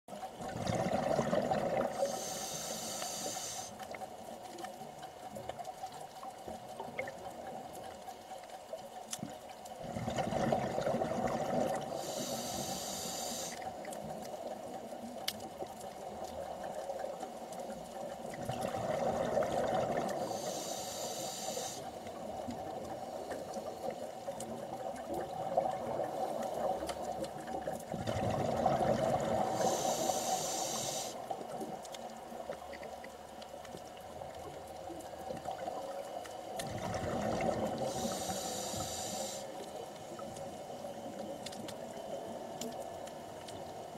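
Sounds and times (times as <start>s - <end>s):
steady background hum: 0.1s - 43.9s
underwater regulator breathing bubbles: 28.0s - 31.2s, 36.6s - 39.5s.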